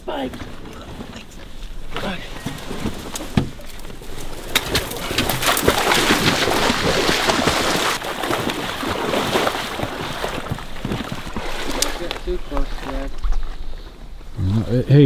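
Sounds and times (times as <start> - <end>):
rustling and snapping grass: 0.3 - 8.6.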